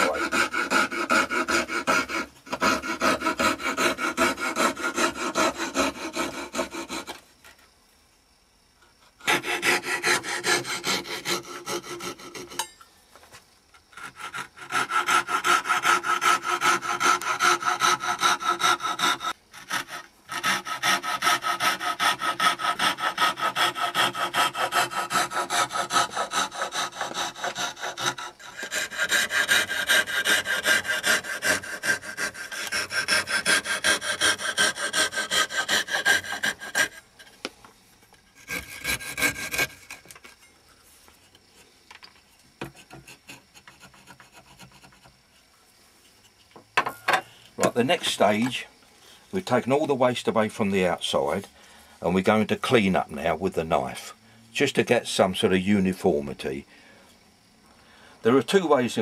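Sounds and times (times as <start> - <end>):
hand saw cutting wood: 0.0 - 7.2, 9.2 - 12.7, 13.9 - 37.3, 38.3 - 40.4, 42.6 - 45.2.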